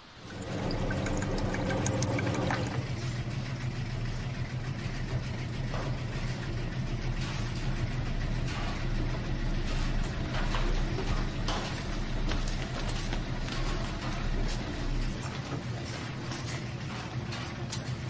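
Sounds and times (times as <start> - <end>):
washing machines humming: 0.0 - 18.0
liquid pouring into plastic cup: 0.2 - 3.1.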